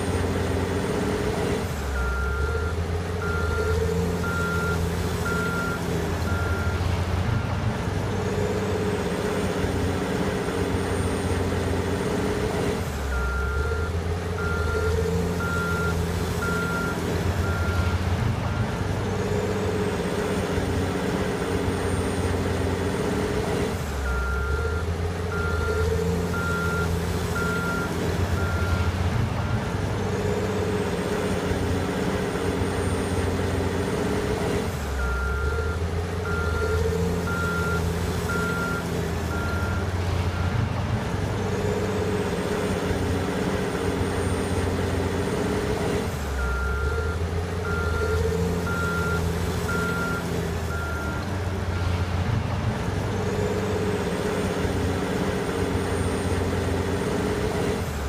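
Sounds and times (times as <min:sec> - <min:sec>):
diesel engine revving with whine: 0:00.0 - 0:58.0.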